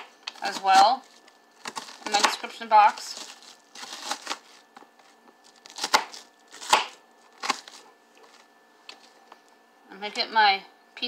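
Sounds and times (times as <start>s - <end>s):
knife chopping onion on board: 1.7s - 2.5s, 5.8s - 7.7s.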